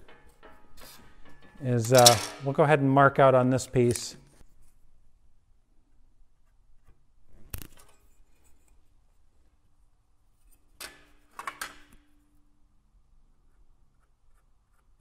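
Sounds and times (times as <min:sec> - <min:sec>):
hand tools clicking and knocking: 0:00.0 - 0:02.8.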